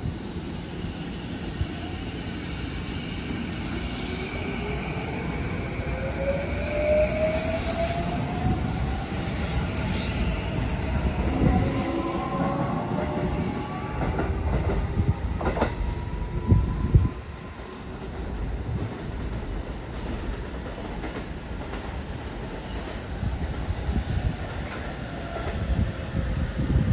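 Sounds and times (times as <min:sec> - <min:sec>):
train rumble: 0:00.0 - 0:26.9
train wheels clacking on rail joints: 0:11.4 - 0:15.9.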